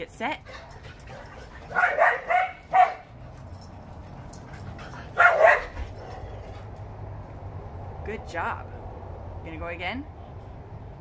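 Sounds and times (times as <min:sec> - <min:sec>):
dog barking: 0:01.1 - 0:03.1, 0:05.2 - 0:06.3.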